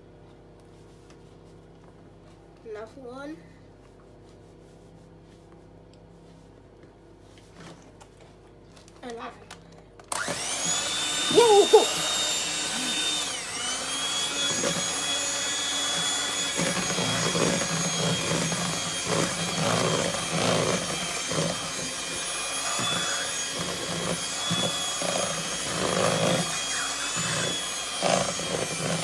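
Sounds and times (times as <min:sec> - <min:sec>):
electric hand mixer whine: 0:10.1 - 0:29.0.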